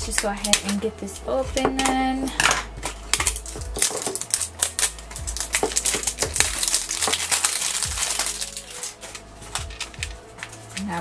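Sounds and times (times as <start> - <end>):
plastic shrink wrap crinkling: 2.8 - 11.0.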